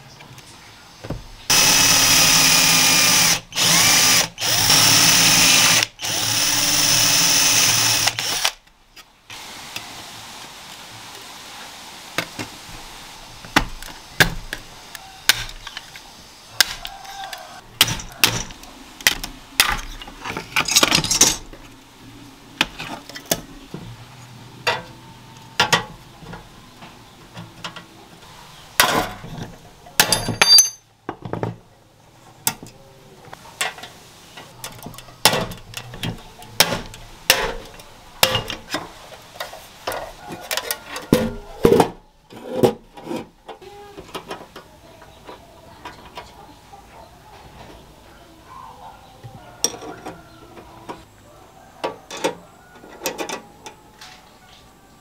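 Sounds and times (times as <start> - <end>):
electric drill running: 1.5 - 8.6.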